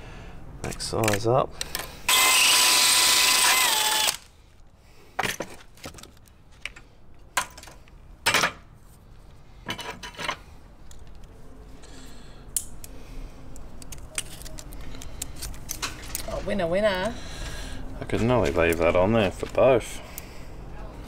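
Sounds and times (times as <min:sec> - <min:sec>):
cordless drill drilling metal: 0:02.1 - 0:04.2.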